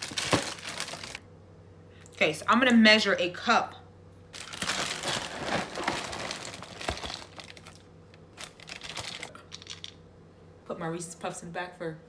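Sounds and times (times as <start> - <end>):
plastic bag crinkling: 0.0 - 1.2, 4.3 - 9.9.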